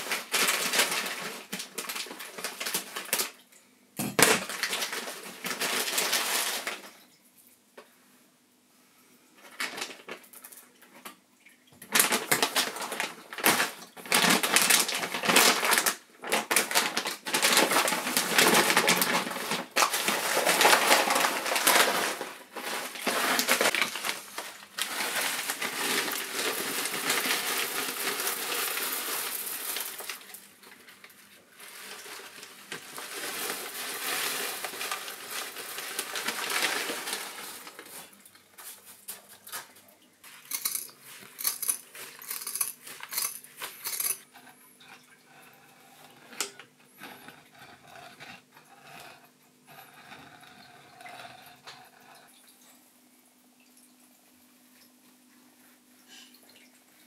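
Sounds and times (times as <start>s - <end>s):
plastic bags crinkling: 0.0s - 3.4s, 4.0s - 7.0s, 9.4s - 10.6s, 11.8s - 45.1s.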